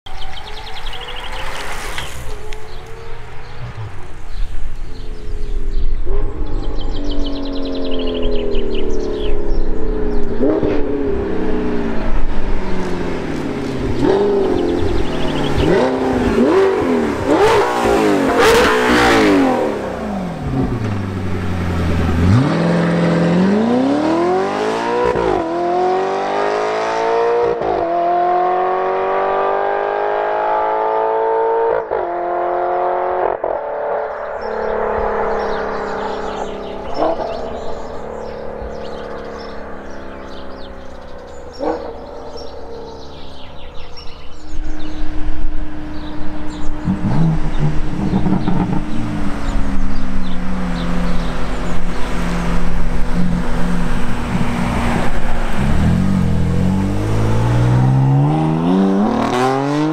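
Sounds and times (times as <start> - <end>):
car passing by: 0.1 - 5.8, 46.0 - 59.9
sports car engines accelerating: 0.1 - 59.9.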